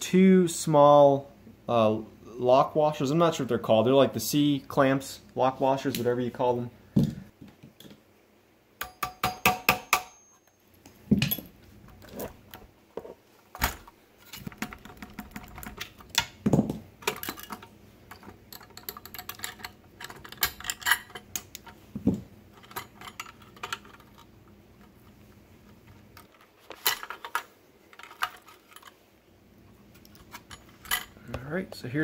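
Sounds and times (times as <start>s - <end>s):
small metal parts clinking: 17.0s - 21.8s, 22.5s - 24.3s, 26.1s - 29.0s.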